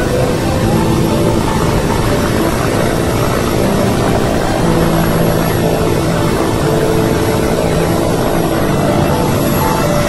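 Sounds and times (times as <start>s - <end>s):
helicopter rotor and engine: 0.0s - 10.0s.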